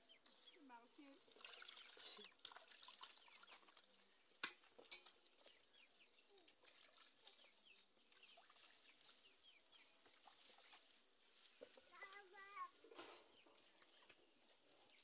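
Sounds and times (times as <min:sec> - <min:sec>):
birds chirping faintly: 0:00.0 - 0:15.0
water splashing in basin: 0:01.0 - 0:04.0, 0:06.3 - 0:09.1.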